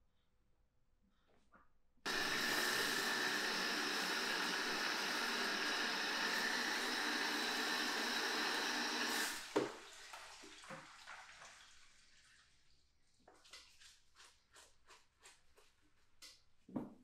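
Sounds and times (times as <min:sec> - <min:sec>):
hair dryer blowing: 0:02.1 - 0:09.6.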